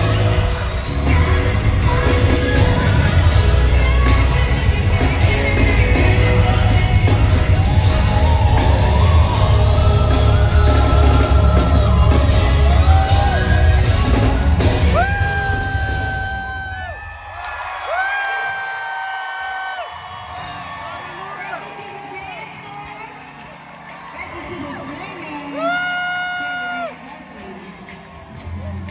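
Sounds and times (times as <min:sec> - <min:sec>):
woman singing live: 0:00.0 - 0:16.3, 0:24.2 - 0:28.8
live band with heavy bass: 0:00.0 - 0:16.7.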